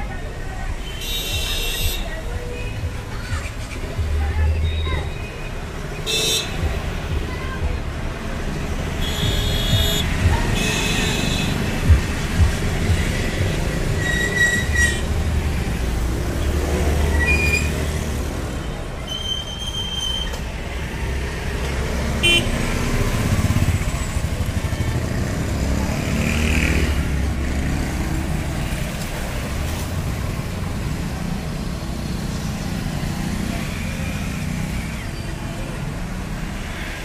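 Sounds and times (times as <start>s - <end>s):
vehicle horn toots: 9.0s - 11.6s, 22.2s - 22.6s
motorcycle and car engines passing: 14.6s - 19.0s, 20.4s - 37.0s.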